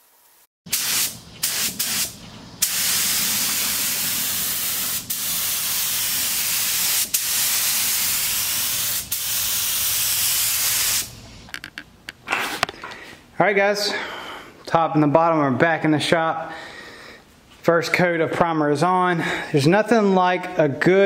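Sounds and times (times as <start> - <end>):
paint spray gun hissing: 0.7 - 11.4.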